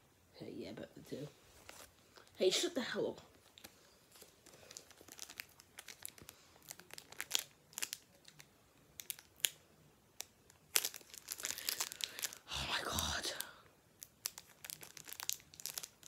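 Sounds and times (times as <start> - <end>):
plastic wrapper crinkling: 3.3 - 16.0.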